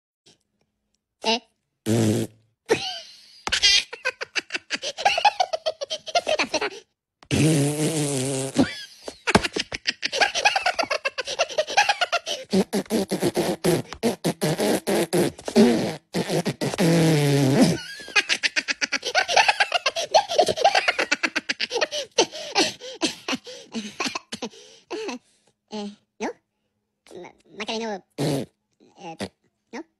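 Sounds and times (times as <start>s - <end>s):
cartoon characters cackling: 8.6s - 12.4s.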